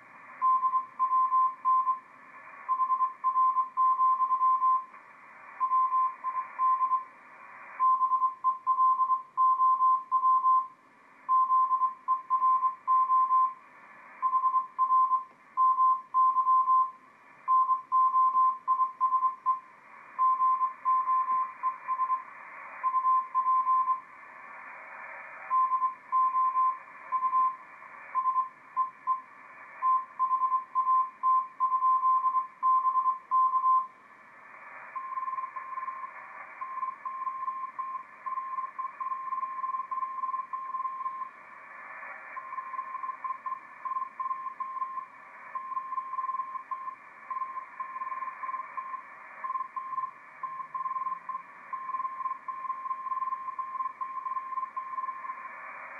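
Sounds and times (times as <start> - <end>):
radio band hiss: 0.0 - 8.6, 13.5 - 15.6, 19.3 - 31.6, 32.4 - 55.9
morse code tone: 42.4 - 55.4.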